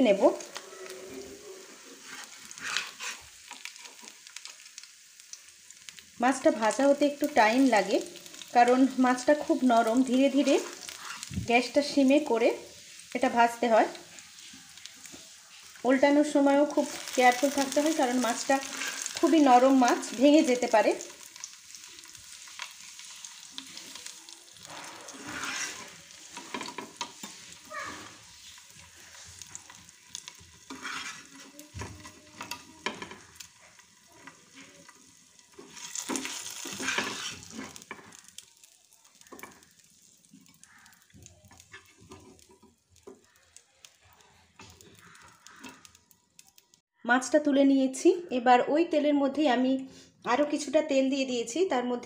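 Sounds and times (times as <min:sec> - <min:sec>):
fish sizzling in hot oil: 0:00.0 - 0:46.8
spatula scraping pan: 0:00.4 - 0:04.2, 0:09.9 - 0:11.4, 0:16.9 - 0:20.6, 0:21.4 - 0:43.3.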